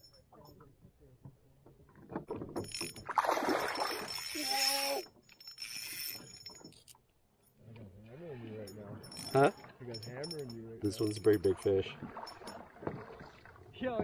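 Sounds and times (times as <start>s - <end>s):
water splashing at a canoe: 2.9s - 4.7s, 11.6s - 14.0s
short voiced sound: 4.3s - 5.1s.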